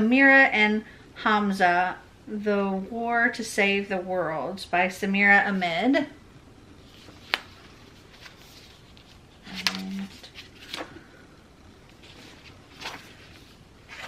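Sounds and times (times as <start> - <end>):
book being handled: 6.8 - 11.1, 11.8 - 14.0
page rustling: 6.8 - 11.1, 11.8 - 14.0.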